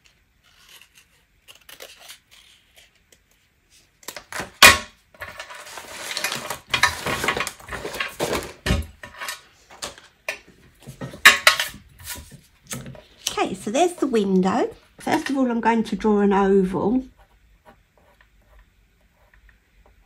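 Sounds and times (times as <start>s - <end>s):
items rustling and sliding: 5.2s - 15.4s.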